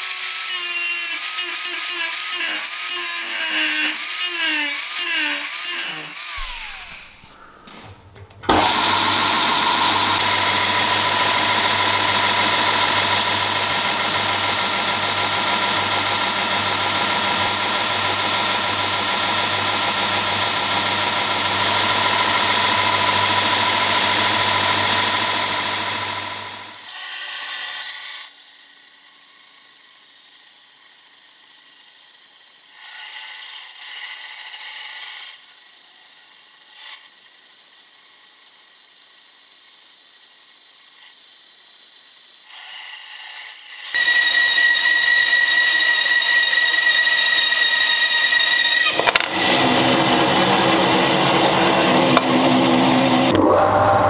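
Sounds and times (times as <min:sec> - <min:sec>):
band saw cutting brass rod: 0:00.0 - 0:07.4, 0:08.4 - 0:28.4, 0:42.5 - 0:54.0
belt grinder grinding steel: 0:00.0 - 0:07.4, 0:08.4 - 0:54.0.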